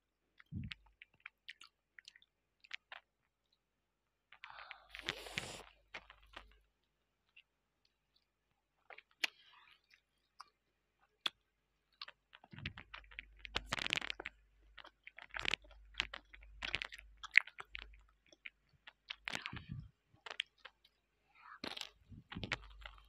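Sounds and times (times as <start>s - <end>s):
crunchy chewing: 12.0s - 23.0s.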